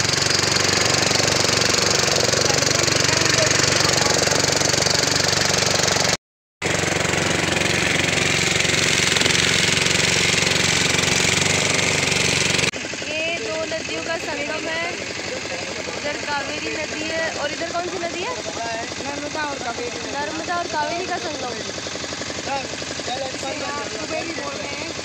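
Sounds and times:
motorboat engine running: 0.0 - 25.0.

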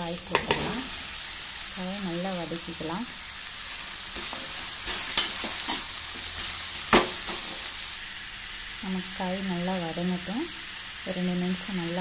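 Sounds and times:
radish sizzling in oil: 0.0 - 12.0
spoon scraping and knocking pan: 0.3 - 0.9, 4.1 - 7.7.

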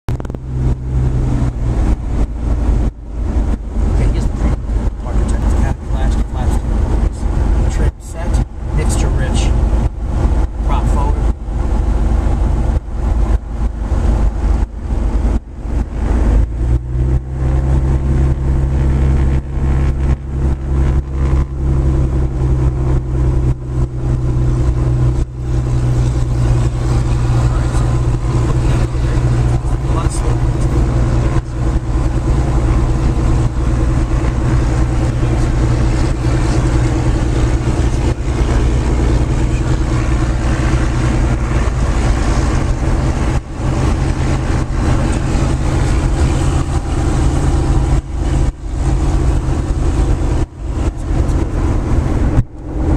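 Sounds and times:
aircraft engine and propeller: 18.0 - 52.9.

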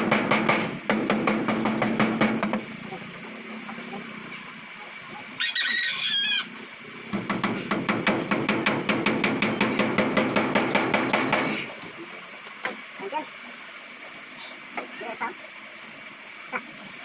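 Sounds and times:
hammer tapping nails: 0.0 - 2.6, 7.1 - 11.6
rooster crowing: 5.4 - 6.6.

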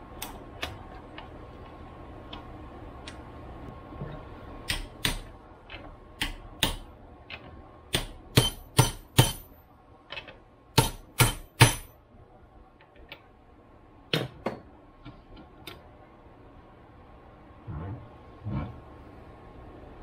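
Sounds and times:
hammer striking metal: 7.9 - 9.6, 10.8 - 12.0.

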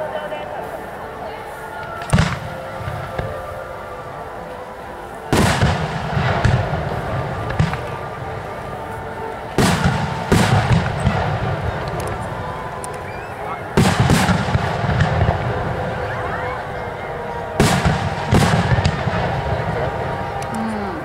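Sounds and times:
faint firework pops: 1.8 - 3.4
firework shells booming: 5.3 - 8.2, 9.5 - 13.1, 13.7 - 16.1, 17.5 - 20.5.

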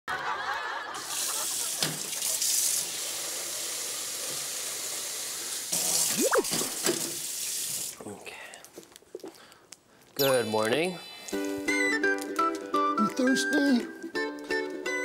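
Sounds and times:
tap water running into bottle: 1.0 - 8.0.

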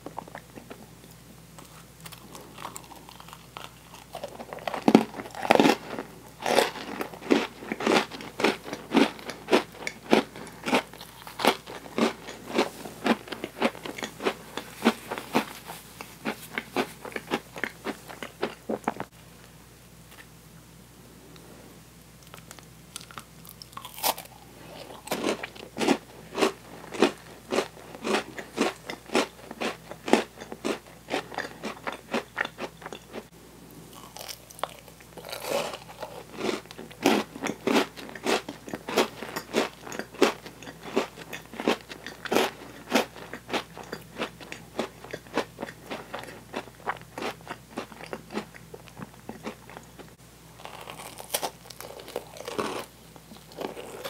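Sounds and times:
crunchy cookie chewing: 0.0 - 19.2, 22.2 - 54.0.

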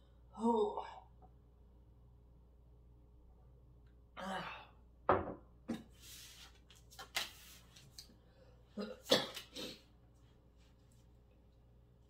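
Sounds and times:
mug set down on wooden table: 5.1 - 5.8
cards clicking and sliding: 6.5 - 8.1.

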